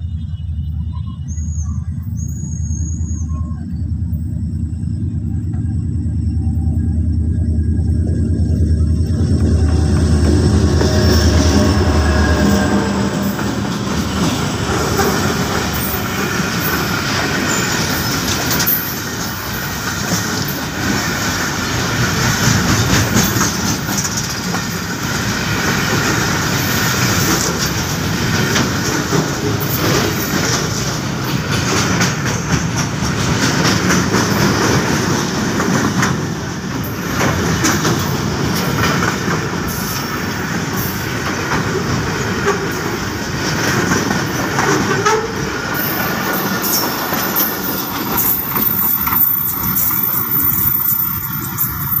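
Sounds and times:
train wheels rumbling on rail: 0.0s - 52.0s
clatter over rail joints: 8.4s - 52.0s.

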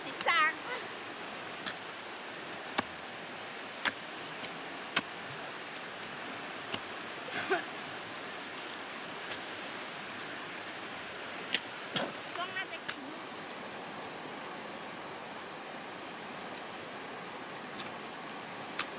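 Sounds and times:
small stream rushing: 0.0s - 18.9s.

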